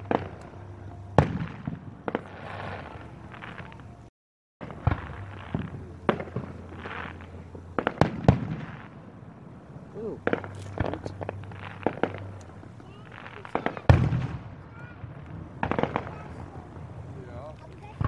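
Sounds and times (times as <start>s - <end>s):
firework crackling: 0.0s - 18.0s
firework shells bursting: 4.6s - 18.0s.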